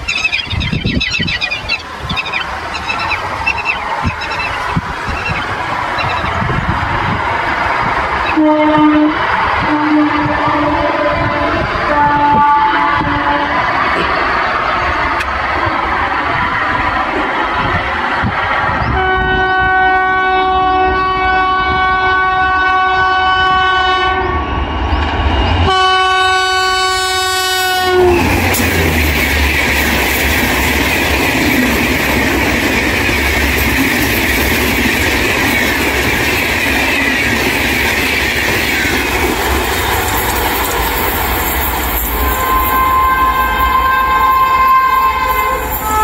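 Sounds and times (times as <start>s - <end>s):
train coaches rushing and clattering: 0.0s - 46.0s
train horn chords: 8.3s - 14.3s, 18.9s - 24.7s, 25.6s - 29.8s, 42.2s - 46.0s.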